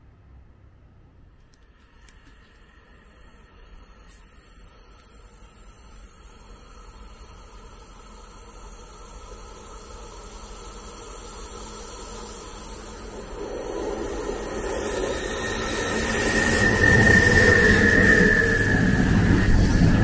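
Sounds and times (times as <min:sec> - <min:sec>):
train rumbling: 0:00.0 - 0:20.0
high wheel squeal: 0:13.0 - 0:20.0.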